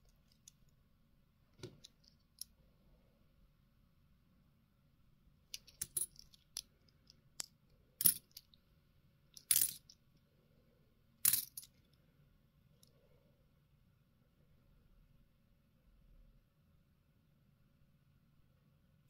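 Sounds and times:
coins clinking in hand: 5.6s - 6.4s, 8.0s - 8.4s, 9.4s - 9.9s, 11.2s - 11.7s.

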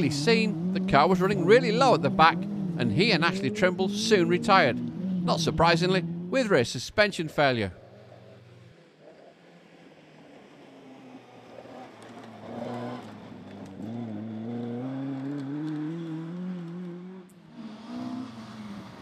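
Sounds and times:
rally car engine accelerating: 0.0s - 6.6s, 7.7s - 19.0s
another engine: 7.6s - 19.0s.

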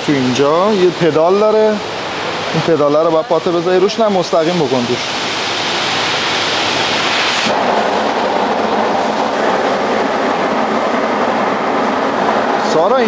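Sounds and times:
machine rushing hiss: 0.0s - 13.0s
mat cleaning machine brushing: 3.6s - 13.0s.

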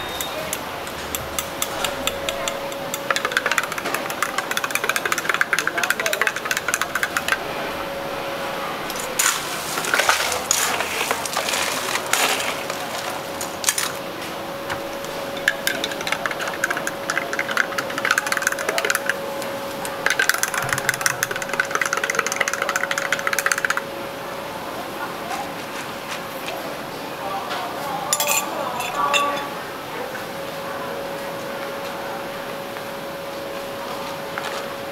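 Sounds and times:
cups and utensils clinking: 0.0s - 7.4s, 14.7s - 23.8s, 28.1s - 29.6s
steady machine hum: 0.0s - 34.9s.

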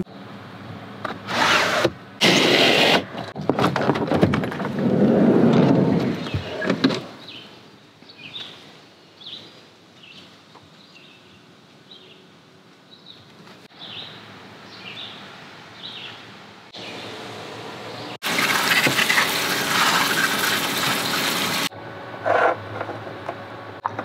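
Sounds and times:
sliding door rumble and thunk: 1.0s - 7.2s.

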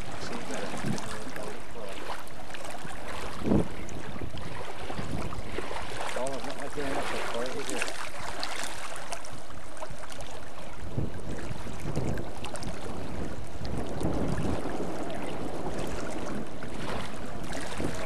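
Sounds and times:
fast-flowing river water: 0.0s - 18.0s
wind rumble on microphone: 0.0s - 18.0s.

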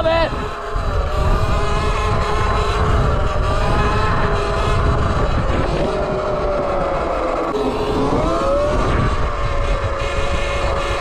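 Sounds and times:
electric motor whining: 0.0s - 11.0s
wind and tyre noise: 0.0s - 11.0s.

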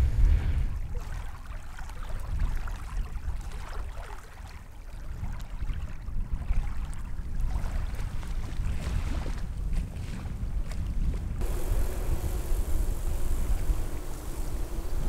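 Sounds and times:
wind rumbling on microphone: 0.0s - 1.3s, 5.1s - 15.0s
small waves lapping at shore: 0.0s - 15.0s.

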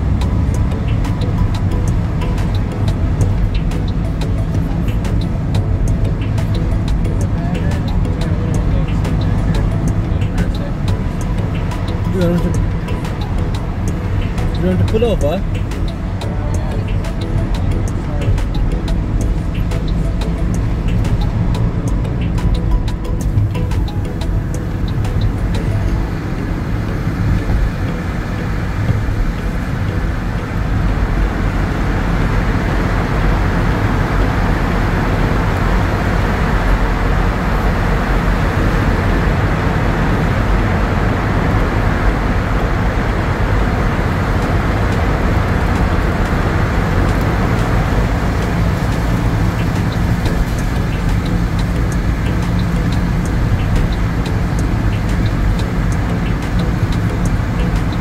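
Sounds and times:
car engine and tyres rumbling: 0.0s - 58.0s.

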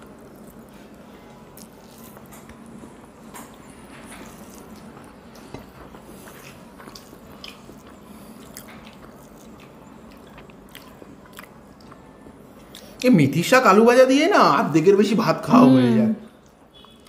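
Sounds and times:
chewing: 0.0s - 13.0s.

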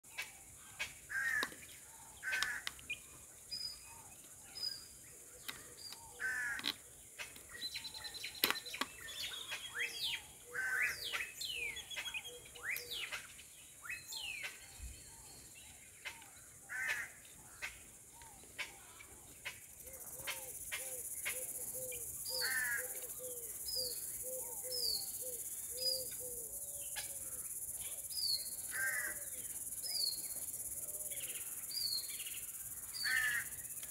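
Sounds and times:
low repeated bird calls: 0.0s - 33.9s
high insect hiss: 0.1s - 2.8s, 18.8s - 33.9s
birds chirping and calling: 0.1s - 33.9s.

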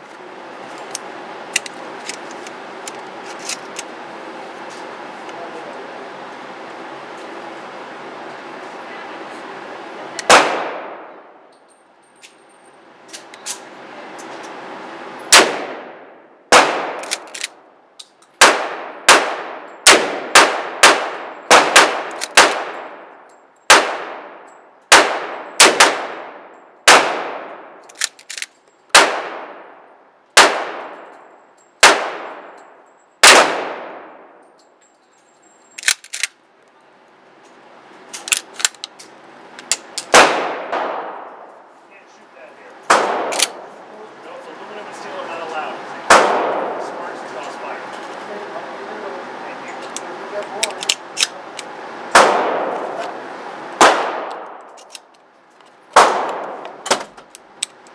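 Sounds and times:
gunshots echoing indoors: 40.1s - 41.5s, 42.9s - 43.6s.

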